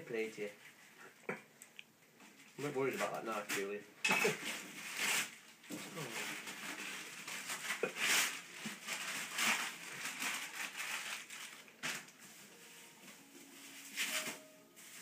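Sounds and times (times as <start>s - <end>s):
paper packaging crinkling: 4.4s - 15.0s.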